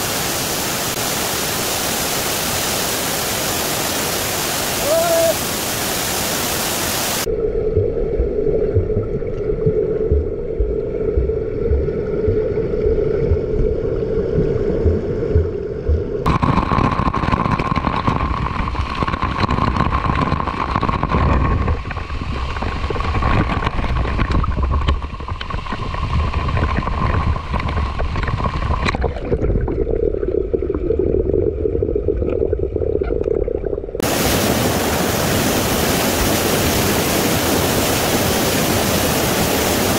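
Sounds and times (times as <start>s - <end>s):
waterfall rushing: 0.0s - 7.3s, 34.0s - 39.9s.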